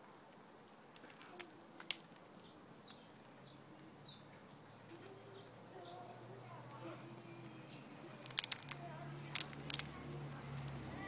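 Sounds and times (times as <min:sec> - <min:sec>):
teeth clicking on nut shell: 0:07.1 - 0:09.9.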